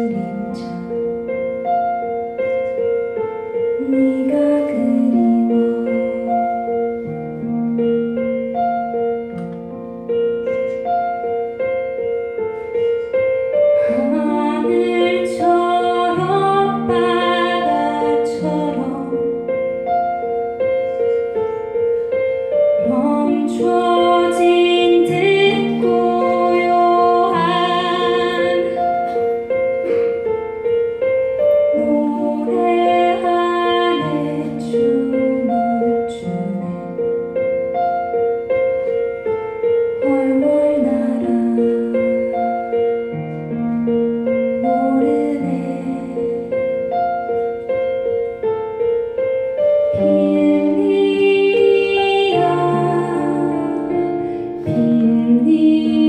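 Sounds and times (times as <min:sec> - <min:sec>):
woman singing: 0:00.0 - 0:01.2, 0:03.8 - 0:07.2, 0:13.8 - 0:19.6, 0:22.7 - 0:29.2, 0:31.6 - 0:37.3, 0:40.0 - 0:42.7, 0:44.6 - 0:46.7, 0:49.9 - 0:56.0
keyboard piano chords: 0:00.0 - 0:56.0.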